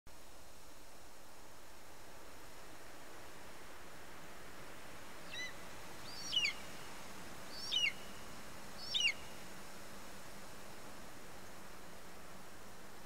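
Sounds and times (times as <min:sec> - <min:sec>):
steady hiss: 0:00.1 - 0:13.0
eagle calling: 0:05.3 - 0:06.6, 0:07.5 - 0:08.1, 0:08.8 - 0:09.3.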